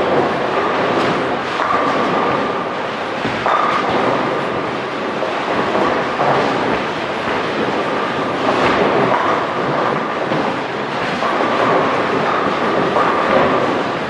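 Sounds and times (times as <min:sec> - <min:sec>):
bowling balls rolling: 0:00.0 - 0:14.0
bowling pins crashing: 0:00.0 - 0:14.0.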